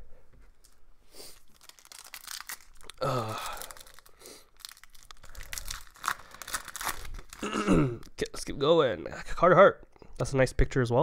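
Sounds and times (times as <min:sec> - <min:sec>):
card pack wrapper tearing: 0:01.2 - 0:08.3.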